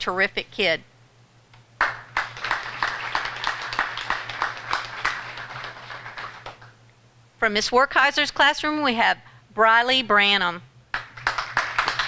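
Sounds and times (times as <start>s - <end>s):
audience applauding: 1.8s - 6.7s, 10.9s - 12.0s.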